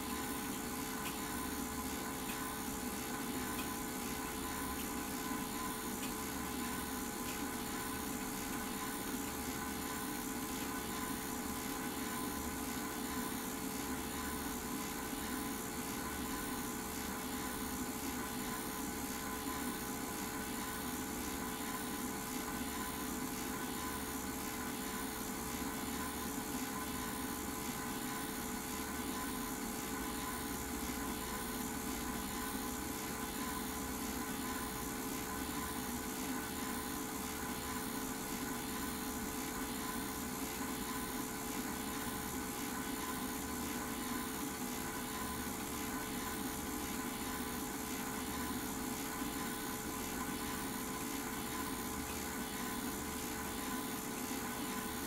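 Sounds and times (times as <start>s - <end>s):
film projector whirring: 0.0s - 55.0s.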